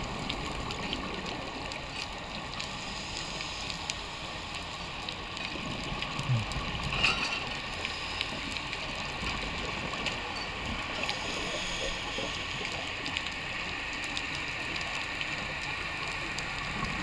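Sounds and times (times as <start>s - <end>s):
underwater hiss: 2.7s - 4.6s, 11.0s - 13.0s.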